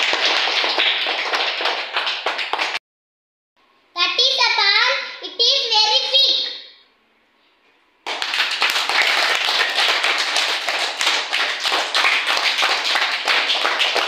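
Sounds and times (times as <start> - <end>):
children clapping: 0.0 - 2.8, 8.0 - 14.0.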